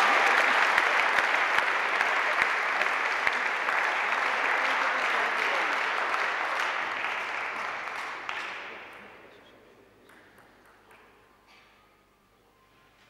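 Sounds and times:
spectators applauding: 0:00.0 - 0:09.2.

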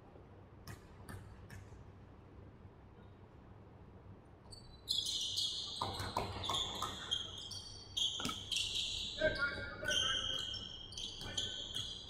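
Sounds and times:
sneakers squeaking on wooden floor: 0:04.6 - 0:12.0
basketball bouncing: 0:05.8 - 0:07.2, 0:08.1 - 0:08.6.

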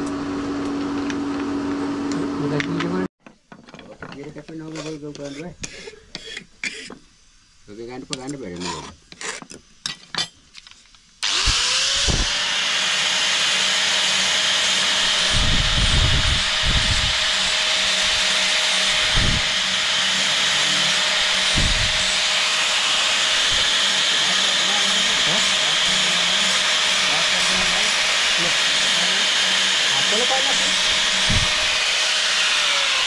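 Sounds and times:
hand file on steel blade: 0:04.5 - 0:07.0, 0:08.2 - 0:09.6, 0:13.3 - 0:33.0
angle grinder whine: 0:11.2 - 0:33.0.

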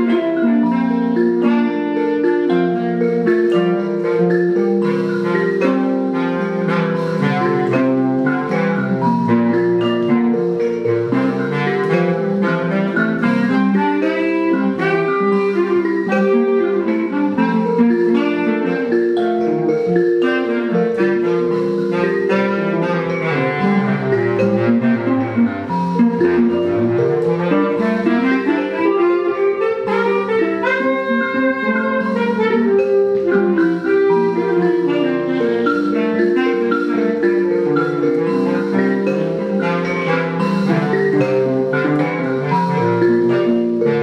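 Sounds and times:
held bass clarinet lines: 0:00.0 - 0:44.0
plucked mbira notes: 0:00.0 - 0:44.0.

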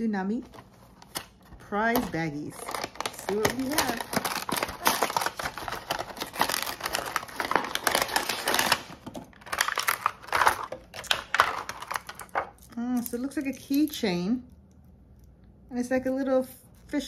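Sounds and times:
plastic bag crinkling: 0:00.5 - 0:13.8
cardboard box tearing: 0:02.7 - 0:08.9.

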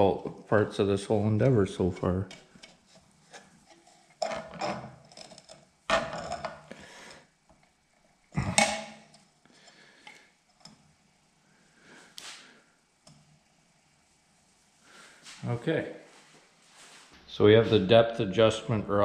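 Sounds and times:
soft scrape: 0:12.0 - 0:12.6, 0:14.4 - 0:17.9.

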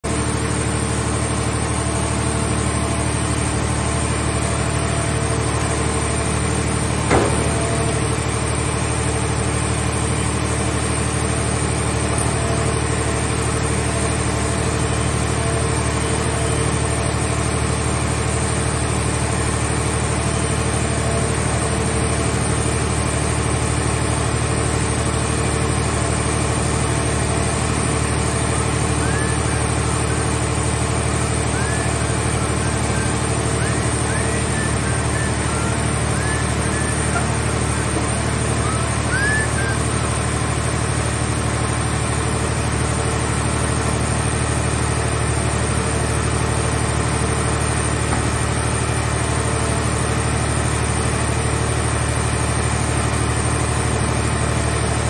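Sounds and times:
heavy machinery engine running: 0:00.0 - 0:55.0
sharp metal clunk: 0:07.0 - 0:08.0.

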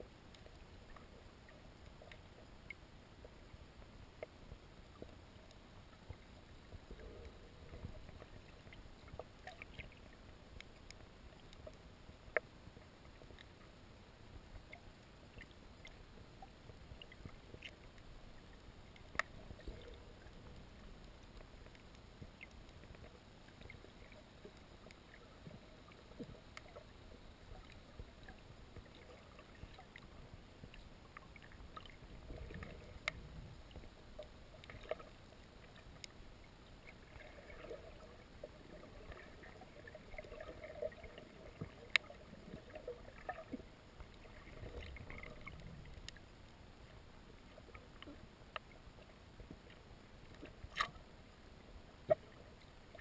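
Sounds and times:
muffled underwater rush: 0:16.2 - 0:48.3.

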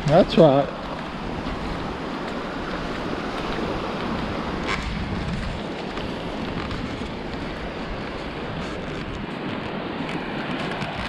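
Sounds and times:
small surf washing: 0:00.0 - 0:11.0
wagon rolling on wet sand: 0:00.0 - 0:11.0
wind buffeting microphone: 0:00.0 - 0:11.0.

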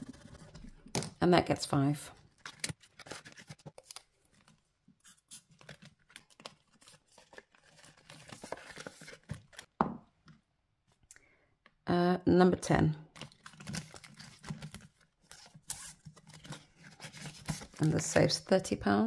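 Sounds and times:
paper rustling: 0:02.3 - 0:09.7, 0:13.2 - 0:18.1.

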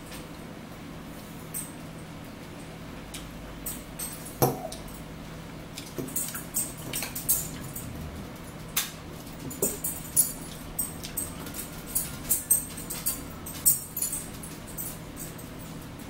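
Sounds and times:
forks clinking on plates: 0:05.8 - 0:08.0, 0:09.4 - 0:15.8.

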